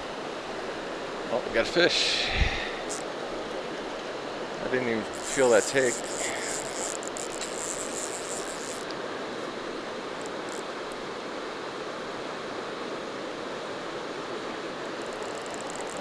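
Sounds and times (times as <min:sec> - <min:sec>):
river water rushing over rocks: 0:00.0 - 0:16.0
high thin hiss: 0:01.8 - 0:03.1, 0:04.8 - 0:08.9.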